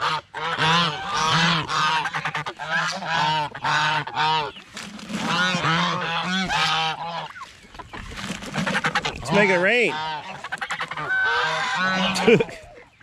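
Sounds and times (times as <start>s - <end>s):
geese honking: 0.0s - 13.0s.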